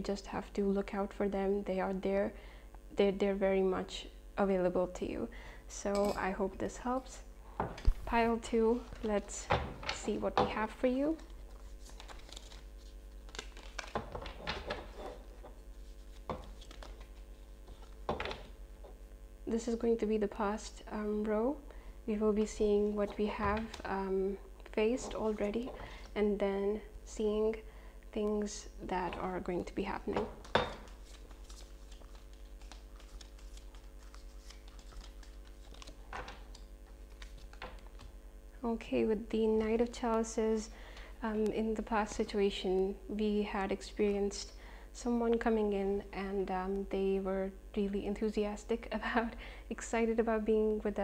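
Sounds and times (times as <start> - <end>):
faint steady hum: 0.0 - 51.0
playing cards flicking: 11.2 - 14.4, 15.8 - 18.5, 30.4 - 38.1.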